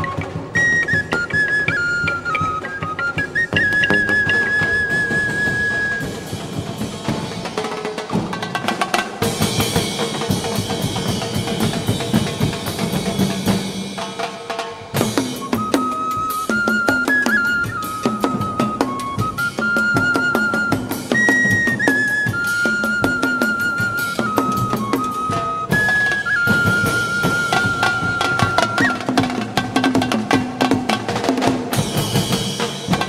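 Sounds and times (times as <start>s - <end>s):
flute melody: 0.0s - 7.2s, 15.0s - 33.0s
drums and percussion: 0.0s - 33.0s.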